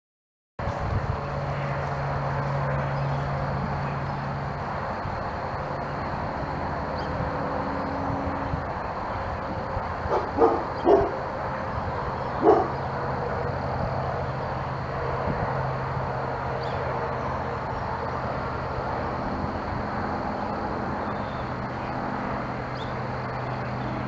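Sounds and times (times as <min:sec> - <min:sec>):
dog barking: 0:10.1 - 0:11.2, 0:12.4 - 0:12.8.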